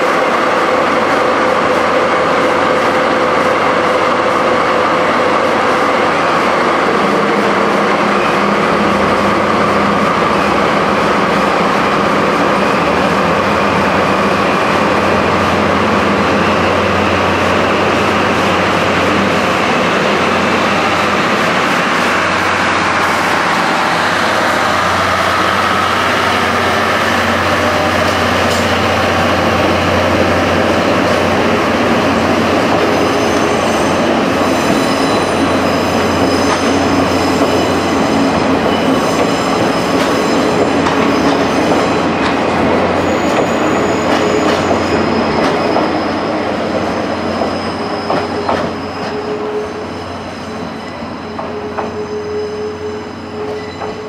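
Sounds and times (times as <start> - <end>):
diesel locomotive engine drone: 0.0 - 54.0
train wheels on rails: 0.0 - 54.0
high wheel squeals: 32.7 - 41.9, 42.8 - 54.0.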